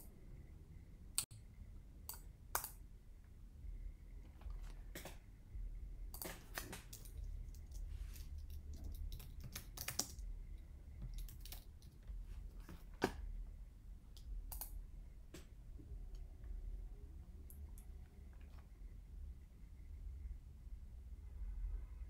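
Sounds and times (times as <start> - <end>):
low steady hum: 0.0 - 22.0
keyboard typing clicks: 2.1 - 2.8, 6.1 - 10.3, 11.0 - 13.2, 14.1 - 14.8.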